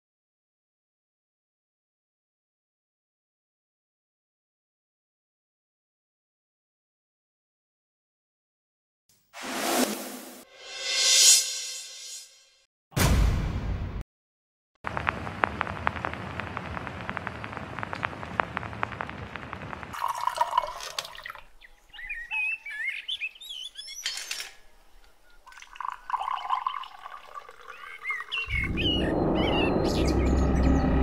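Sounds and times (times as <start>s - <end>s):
dense crackling hiss: 14.9s - 20.0s
small birds chirping: 15.4s - 19.9s, 21.2s - 31.0s
tea pouring into a mug: 19.9s - 21.4s, 25.5s - 28.4s.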